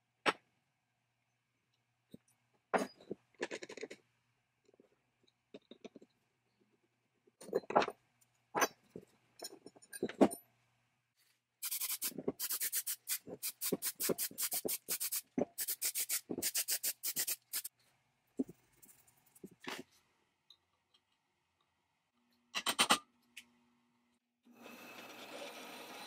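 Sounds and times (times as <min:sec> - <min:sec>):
aerosol spray bursts: 0:11.6 - 0:17.7.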